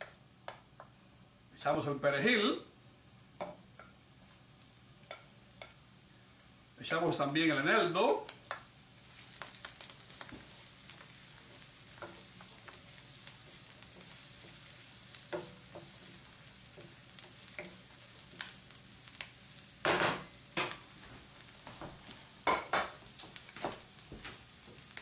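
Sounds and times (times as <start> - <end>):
food sizzling in oil: 1.6 - 25.0
wooden spatula scraping a pan: 9.1 - 18.5.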